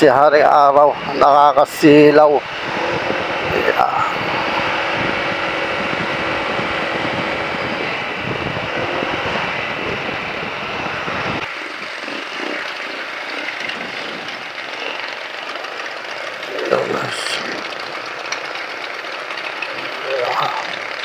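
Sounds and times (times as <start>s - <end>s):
motorcycle engine and road drone: 0.0s - 21.0s
wind buffeting microphone: 0.9s - 15.4s.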